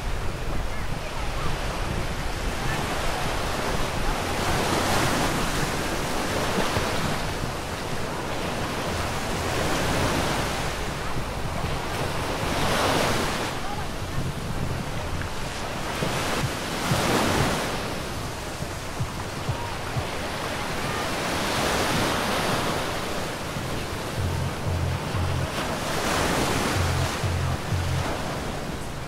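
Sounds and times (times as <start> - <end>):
ocean surf breaking: 0.0 - 29.0
wind on microphone: 0.0 - 29.0
bass beat of music: 24.2 - 25.6, 26.6 - 28.2.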